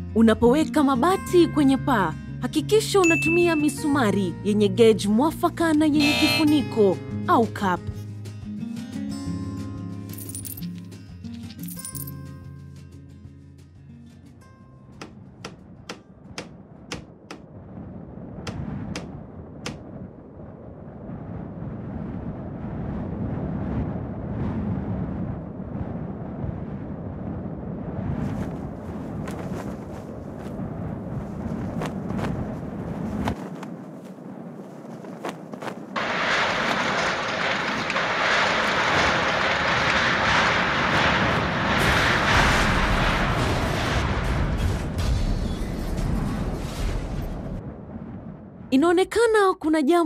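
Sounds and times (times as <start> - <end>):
low rushing wind: 14.7 - 49.2.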